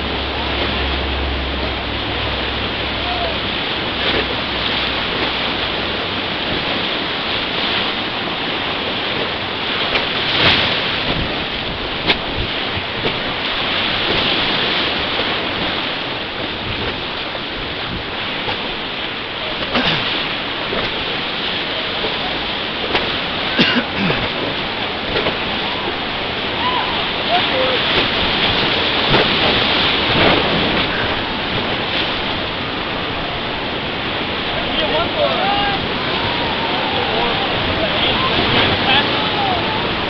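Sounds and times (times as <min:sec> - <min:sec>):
whitewater rapids rushing: 0:00.0 - 0:40.0
sharp knocks or splashes: 0:03.8 - 0:05.8, 0:09.2 - 0:15.9, 0:19.5 - 0:25.6, 0:27.8 - 0:32.6.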